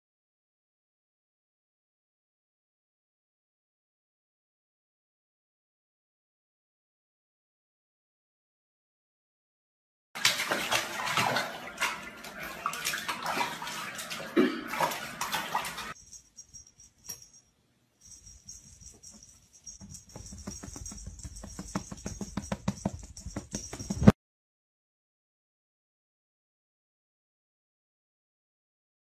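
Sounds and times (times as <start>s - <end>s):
water splashing in a bathtub: 10.2s - 16.0s.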